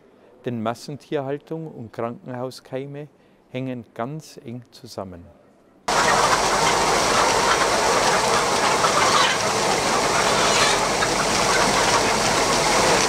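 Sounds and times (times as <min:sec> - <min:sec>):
hens clucking: 0:05.9 - 0:13.0.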